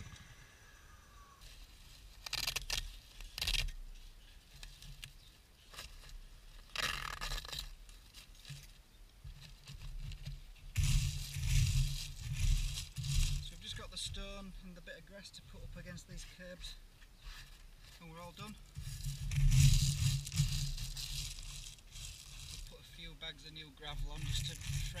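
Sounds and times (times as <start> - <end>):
gravel scraping on concrete: 17.2 - 25.0.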